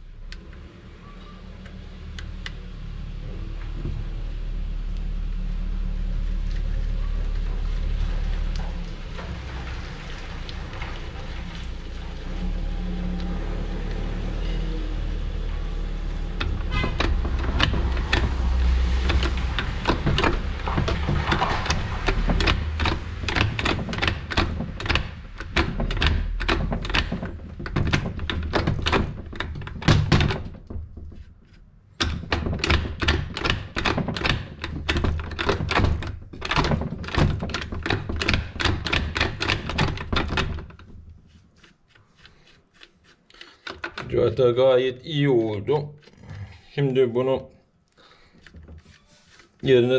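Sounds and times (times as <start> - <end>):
sharp metallic clicks and knocks: 15.2 - 44.4.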